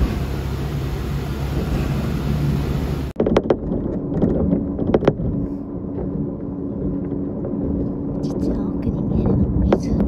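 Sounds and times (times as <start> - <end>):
railcar engine drone: 0.0 - 3.2.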